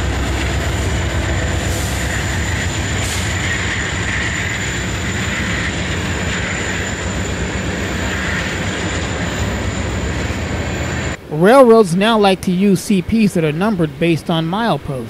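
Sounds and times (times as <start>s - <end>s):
train wheels rumbling on rails: 0.0s - 12.4s
faint high whine: 0.0s - 15.0s.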